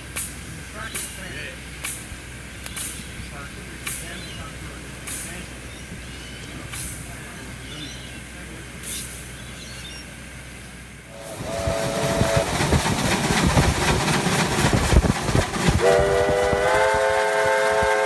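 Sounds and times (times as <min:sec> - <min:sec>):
steam locomotive chuffing: 0:00.0 - 0:18.0
steam whistle blasts: 0:11.1 - 0:12.6, 0:15.7 - 0:18.0.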